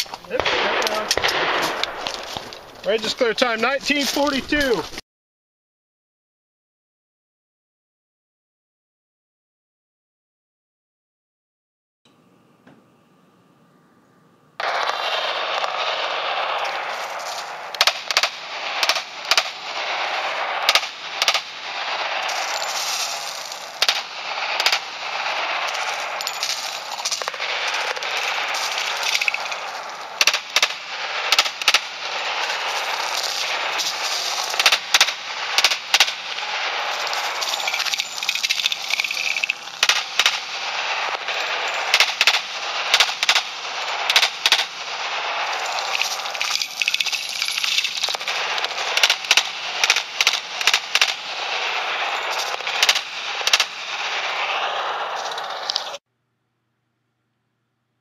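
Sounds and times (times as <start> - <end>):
handgun shots: 0.3 - 2.7
pistol shots: 0.3 - 3.1, 14.6 - 55.7
background hiss: 12.1 - 56.0.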